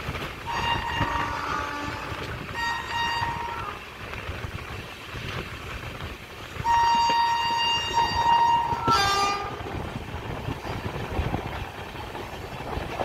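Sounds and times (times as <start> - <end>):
rumble of moving train: 0.0 - 13.0
train horn: 0.4 - 4.0, 6.6 - 9.9.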